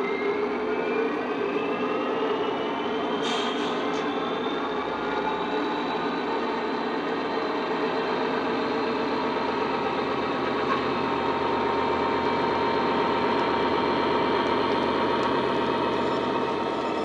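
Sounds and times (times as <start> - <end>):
diesel engine sound from small speaker: 7.6 - 17.0.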